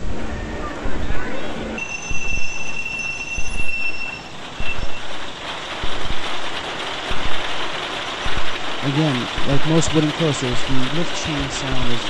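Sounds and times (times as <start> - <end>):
high squeal: 1.8 - 5.2
roller coaster train clattering on chain: 1.8 - 12.0
low knocks: 4.6 - 9.6.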